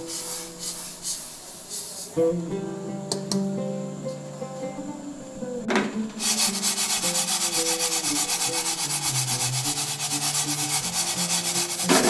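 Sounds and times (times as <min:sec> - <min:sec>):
seeds swishing in shaken pan: 0:06.2 - 0:12.0.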